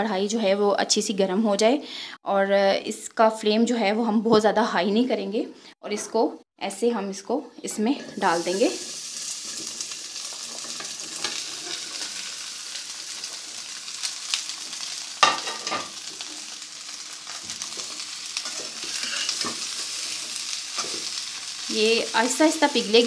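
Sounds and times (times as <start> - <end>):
fat sizzling in a pan: 8.0 - 23.0
metal spatula knocking and scraping pan: 15.2 - 16.0.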